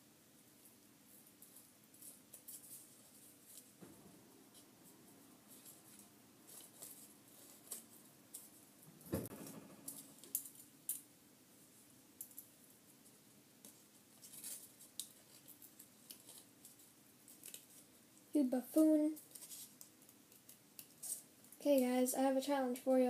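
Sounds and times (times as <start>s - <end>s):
loud bump: 8.9s - 10.4s.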